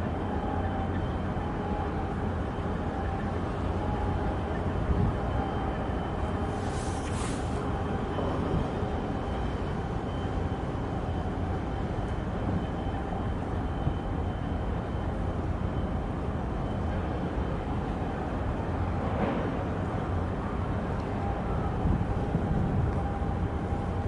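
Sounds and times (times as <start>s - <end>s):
brief hiss: 6.6s - 7.6s.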